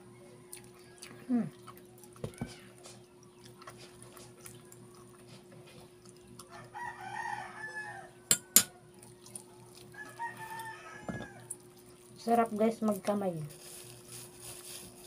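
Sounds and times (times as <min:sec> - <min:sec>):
rooster crowing: 0:06.5 - 0:08.9, 0:09.9 - 0:11.6.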